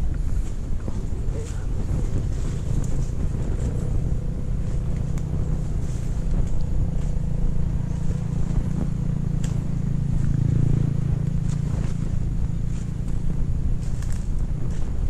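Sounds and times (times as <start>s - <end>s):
low rumble: 0.0s - 15.0s
footsteps through leaf litter: 11.4s - 15.0s.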